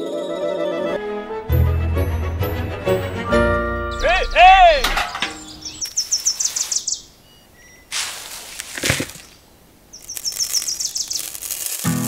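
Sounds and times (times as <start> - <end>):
birds twittering: 3.1 - 11.4
sand pouring from metal bucket: 7.9 - 9.4, 10.0 - 12.0.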